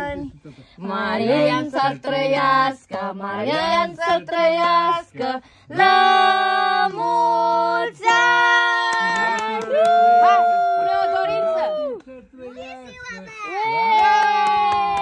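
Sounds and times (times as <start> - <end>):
voices singing birthday song: 0.0 - 9.9.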